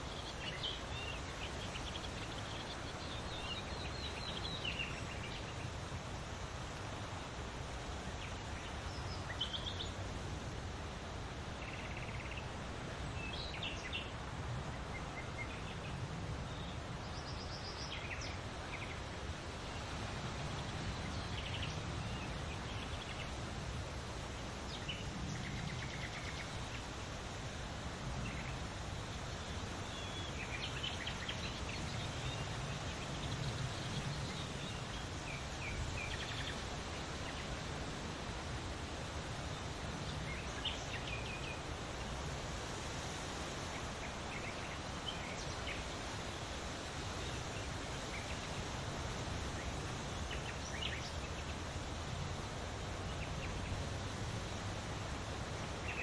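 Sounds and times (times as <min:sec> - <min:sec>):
leaves rustling in wind: 0:00.0 - 0:56.0.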